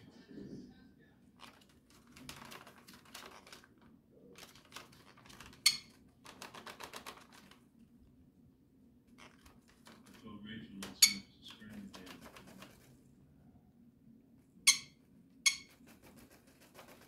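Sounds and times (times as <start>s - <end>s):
bird chewing paper bag: 1.4s - 7.7s, 15.7s - 17.0s.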